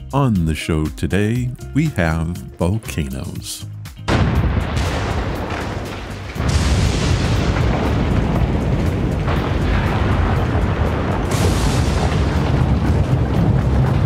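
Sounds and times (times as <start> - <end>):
deep volcanic rumble: 4.1 - 14.0
loud blasts: 4.1 - 14.0.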